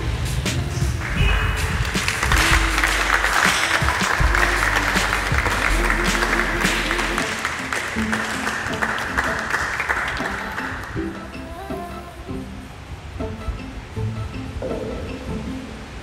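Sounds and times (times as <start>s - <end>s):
music: 0.0s - 16.0s
congregation clapping: 1.0s - 11.0s.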